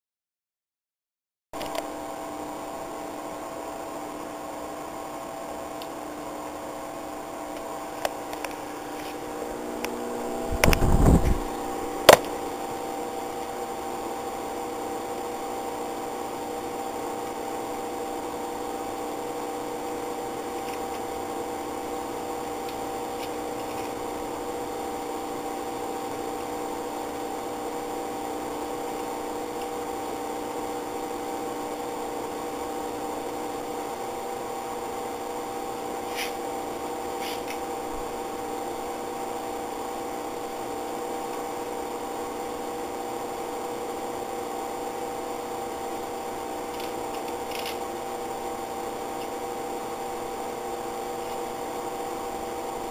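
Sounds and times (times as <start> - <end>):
steady machine hum: 1.6 - 52.9.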